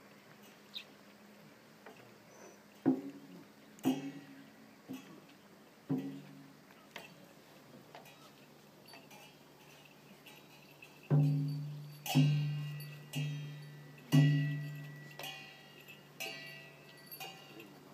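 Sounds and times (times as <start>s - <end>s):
faint light clinks: 1.9s - 17.9s
metallic clash ringing: 3.9s - 5.2s, 8.0s - 17.9s.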